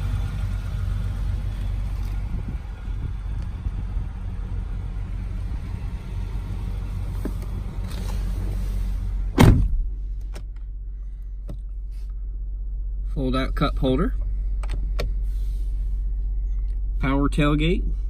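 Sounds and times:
low hum: 0:00.0 - 0:18.0
low rumble: 0:00.0 - 0:18.0
outdoor noise: 0:00.0 - 0:18.0
car door shutting: 0:07.0 - 0:08.7, 0:09.3 - 0:10.5.

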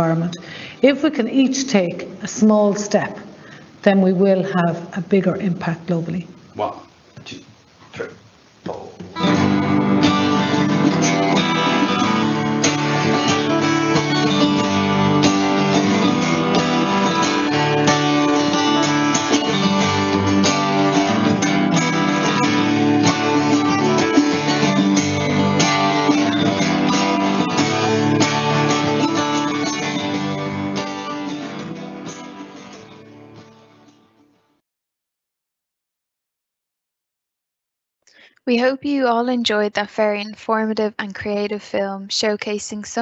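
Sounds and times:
acoustic guitar strumming: 0:08.7 - 0:34.4
mandolin: 0:09.2 - 0:33.0.

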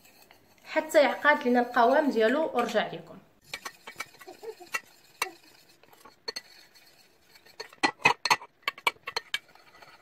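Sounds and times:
plastic spoon clinking in steel pot: 0:07.4 - 0:09.6.

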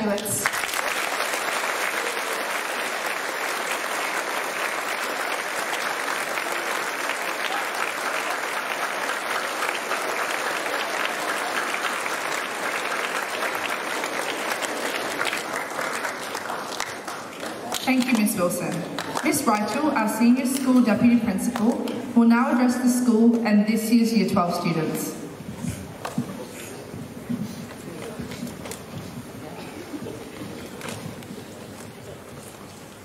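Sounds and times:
audience applauding: 0:00.0 - 0:19.9.

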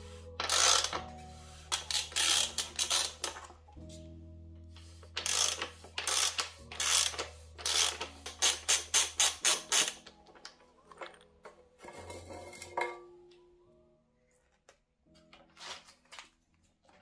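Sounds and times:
tool rasping and ratcheting on metal: 0:00.4 - 0:01.1, 0:01.7 - 0:03.5, 0:05.0 - 0:10.1.

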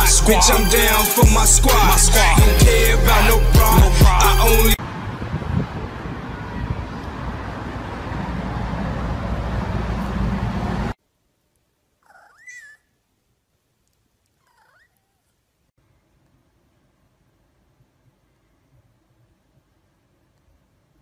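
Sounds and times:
cat meowing: 0:14.4 - 0:15.2.

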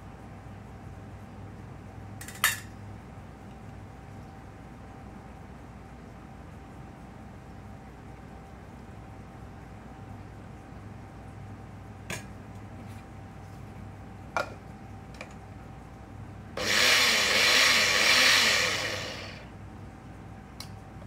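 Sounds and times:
blender motor whirring: 0:16.6 - 0:19.5.

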